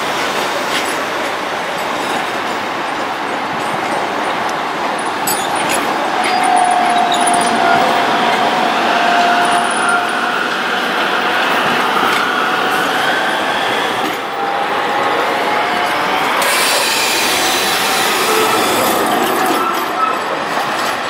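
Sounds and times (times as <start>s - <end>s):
tram wheels rumbling on rail: 0.0s - 21.0s
wheel squeal on curve: 16.4s - 20.2s.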